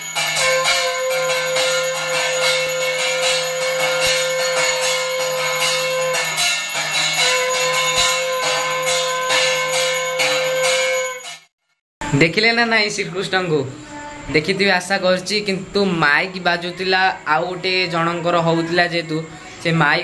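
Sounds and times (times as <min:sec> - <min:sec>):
hand bell ringing rapidly: 0:00.0 - 0:11.4
steady held tone: 0:00.0 - 0:11.5.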